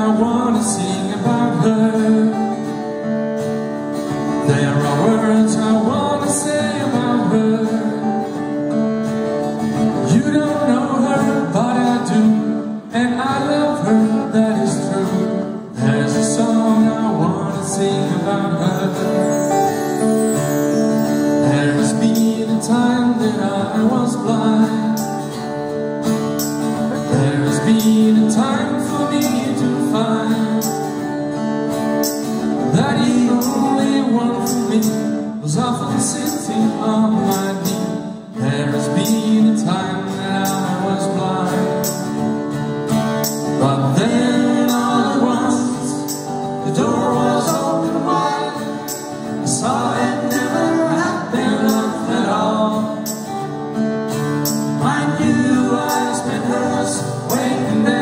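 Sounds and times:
acoustic guitar: 0:00.0 - 0:58.0
accordion: 0:18.5 - 0:22.3
voices singing together: 0:27.1 - 0:30.7, 0:43.6 - 0:53.4, 0:54.4 - 0:58.0.

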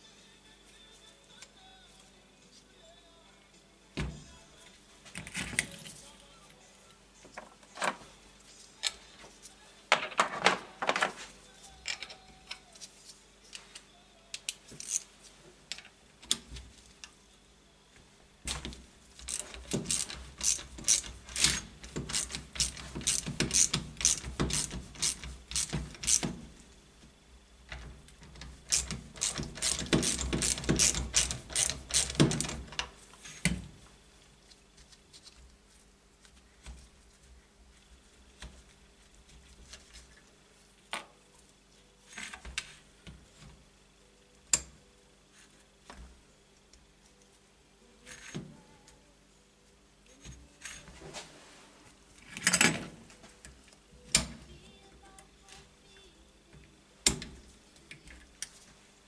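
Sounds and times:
hand ratchet clicking: 0:19.2 - 0:26.3, 0:28.7 - 0:32.6
metal parts knocking: 0:19.3 - 0:26.3, 0:28.7 - 0:32.8.

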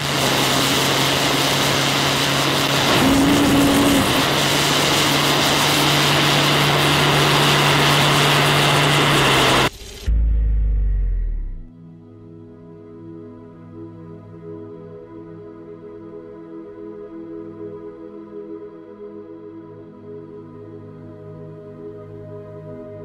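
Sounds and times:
rocket engine roaring: 0:00.0 - 0:11.7
short low hum: 0:09.6 - 0:11.7.

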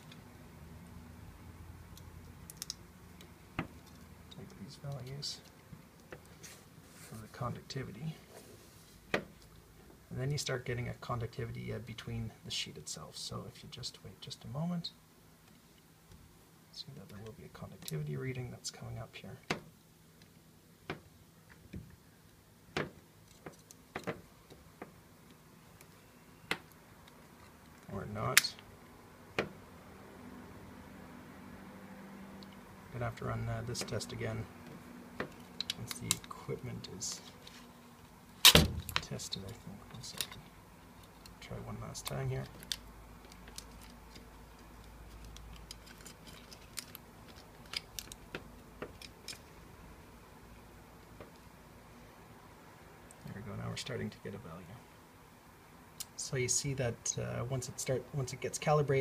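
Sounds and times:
faint low hum: 0:00.0 - 0:59.0
copper foil crinkling: 0:42.3 - 0:48.3.

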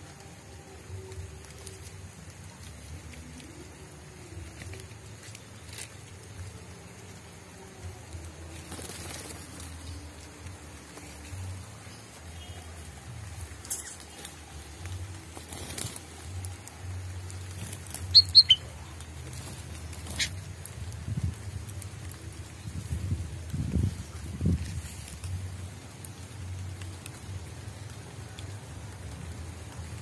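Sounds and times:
bird wings fluttering in twigs: 0:00.0 - 0:30.0
light rain patter: 0:00.0 - 0:30.0
bird sharp short chirps: 0:18.1 - 0:18.6.

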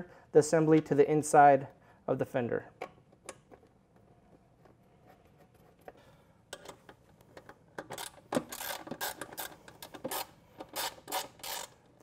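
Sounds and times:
socket ratchet clicking: 0:07.8 - 0:11.8.

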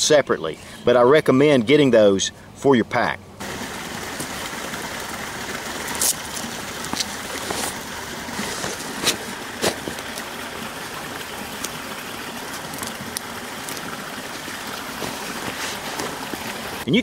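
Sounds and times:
creek running: 0:00.6 - 0:17.0
hook-and-loop pocket rustling: 0:05.9 - 0:10.4, 0:12.4 - 0:16.6.

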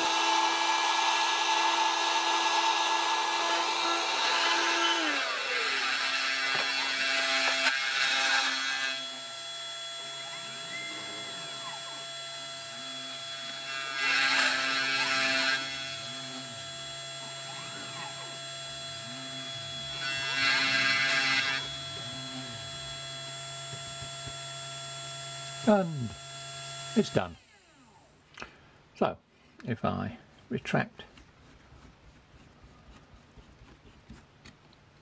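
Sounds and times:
bit cutting board: 0:00.0 - 0:28.0, 0:30.7 - 0:35.0
mill spindle humming: 0:00.0 - 0:28.4
stepper motors whining: 0:00.0 - 0:28.4
vacuum cleaner winding down: 0:09.0 - 0:13.6.

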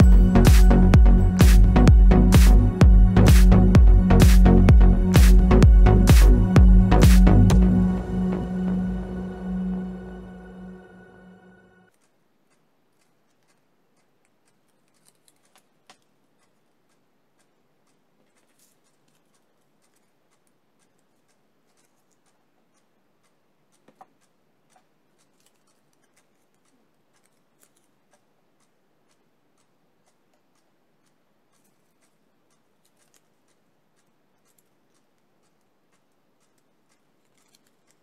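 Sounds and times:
music track: 0:00.0 - 0:11.9
paper flowers clicking and rustling: 0:11.9 - 0:28.4, 0:31.5 - 0:38.0.

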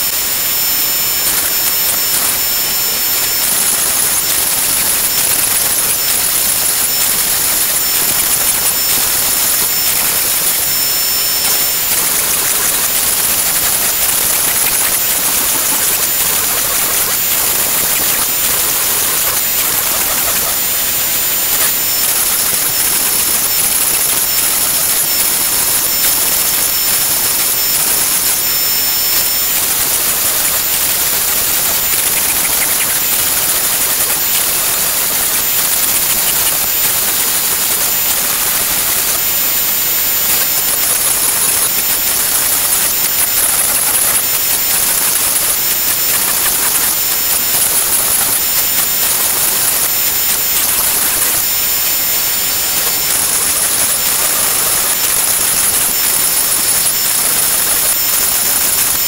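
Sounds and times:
router spindle whine cutting wood: 0:00.0 - 0:59.0.

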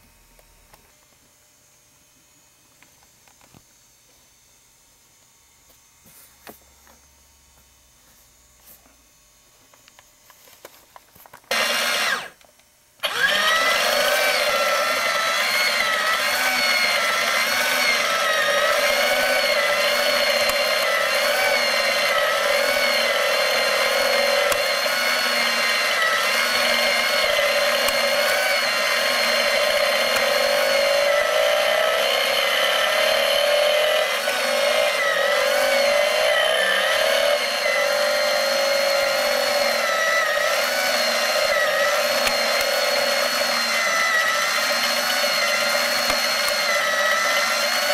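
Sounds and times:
small electric motor whirring: 0:11.5 - 0:12.4, 0:13.0 - 0:47.9.

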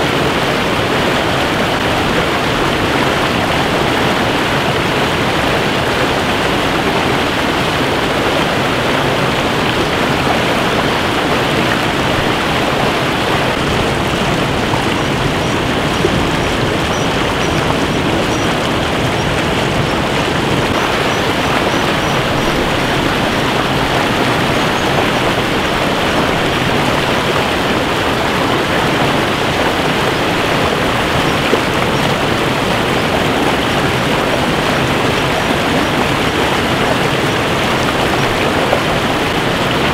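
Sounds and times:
stream rushing over boulders: 0:00.0 - 0:39.9.

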